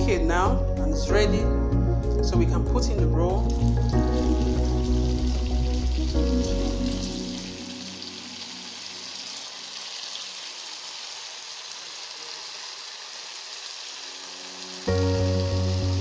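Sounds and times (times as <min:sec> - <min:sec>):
oil sizzling in a pan: 0:03.4 - 0:16.0.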